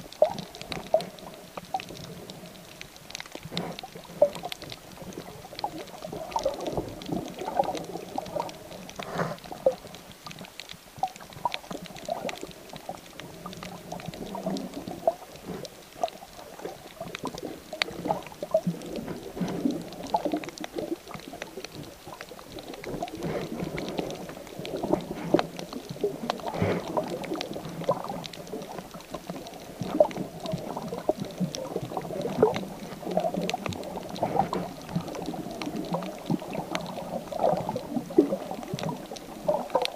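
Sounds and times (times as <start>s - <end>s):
underwater sloshing and gurgling: 0.0s - 39.9s.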